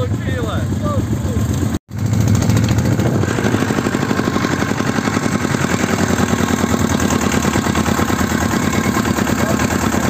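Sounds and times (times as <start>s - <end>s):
tractor engine chugging: 0.0s - 10.0s.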